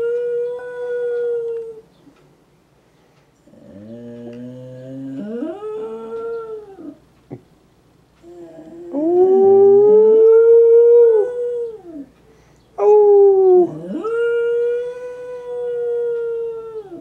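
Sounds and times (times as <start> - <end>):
dog howling: 3.6 - 7.0, 8.5 - 12.1, 12.8 - 17.0.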